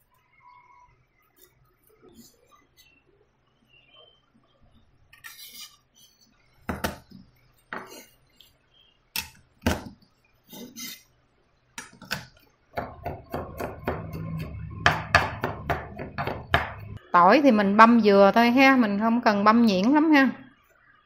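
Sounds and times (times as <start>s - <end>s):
knife chopping on wooden board: 11.8s - 16.9s.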